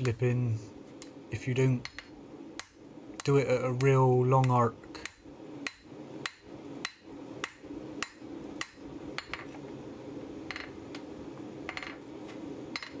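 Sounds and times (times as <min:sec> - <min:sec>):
steady low hum: 0:00.0 - 0:13.0
hammer striking steel on anvil: 0:04.4 - 0:09.4.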